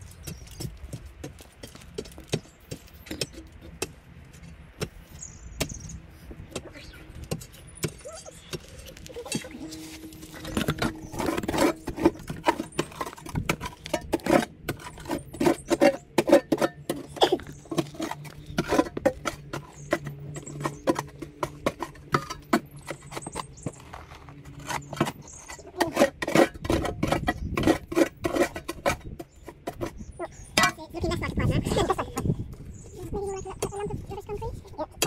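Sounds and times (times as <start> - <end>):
spade scraping stony soil: 8.2 - 34.0.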